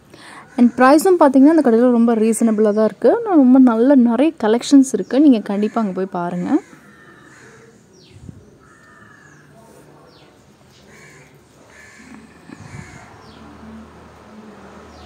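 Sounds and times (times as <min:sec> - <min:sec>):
harsh bird calls: 0:05.4 - 0:14.0.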